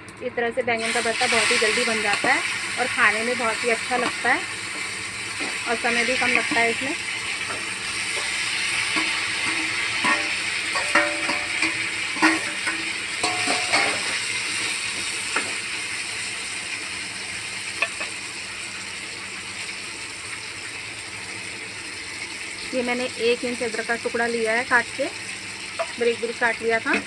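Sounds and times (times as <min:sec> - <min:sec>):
vegetables sizzling in hot oil: 0:00.7 - 0:27.0
steel ladle clinking against pan: 0:09.0 - 0:14.0.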